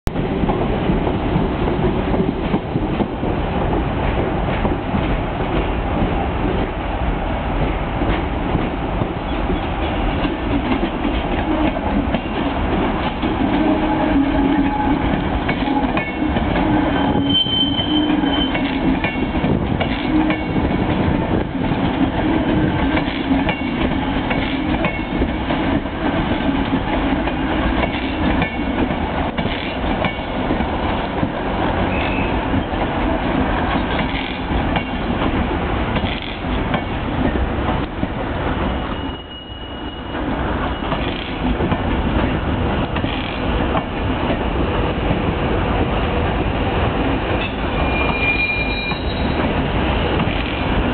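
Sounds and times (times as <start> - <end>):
electric train passing slowly: 0.1 - 50.9
high wheel squeal: 16.7 - 18.8, 31.9 - 32.4, 38.7 - 41.0, 47.7 - 49.4.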